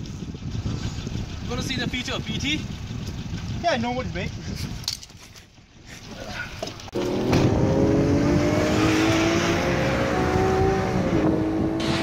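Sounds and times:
car engine accelerating: 0:06.9 - 0:12.0.

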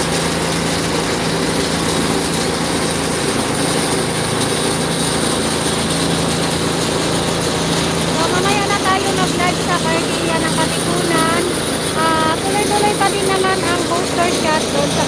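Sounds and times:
water spraying from hose: 0:00.0 - 0:09.5
truck engine humming: 0:00.0 - 0:15.0.

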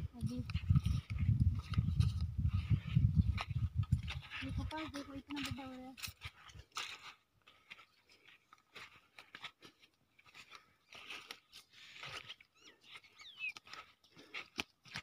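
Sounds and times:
footsteps crunching on soil: 0:00.0 - 0:15.0
short high chirps: 0:13.2 - 0:13.6.

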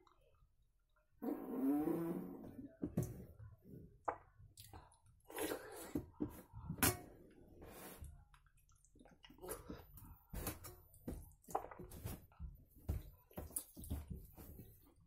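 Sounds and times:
slurping and chewing: 0:04.6 - 0:06.0, 0:07.6 - 0:10.7.

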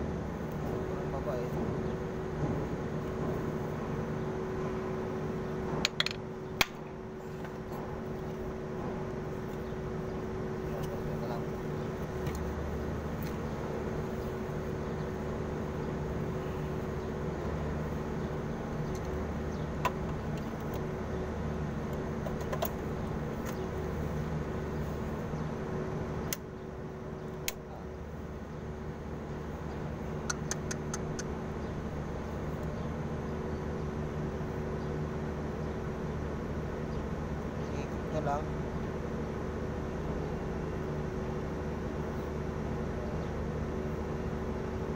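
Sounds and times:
light clicks of wiring: 0:27.4 - 0:27.6.

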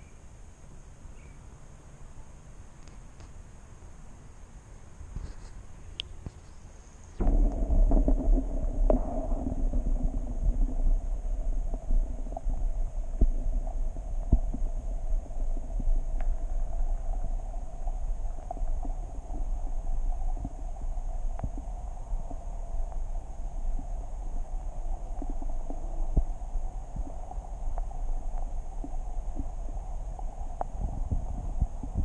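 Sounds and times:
steady hum: 0:06.6 - 0:32.0
muffled underwater rumble: 0:07.1 - 0:32.0
small underwater clicks: 0:07.2 - 0:32.0.

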